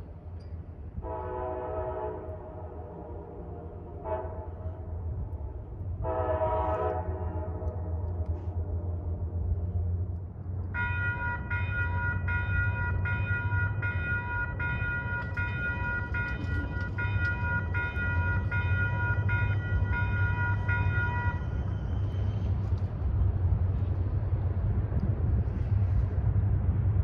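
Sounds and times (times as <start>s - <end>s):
diesel train rumble: 0.0s - 27.0s
railroad bell ringing: 10.8s - 22.8s.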